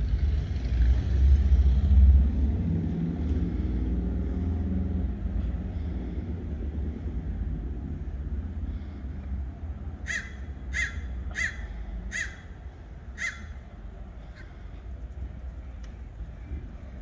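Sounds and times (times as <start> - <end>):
steady low rumble: 0.0 - 17.0
bird calling: 10.0 - 14.6.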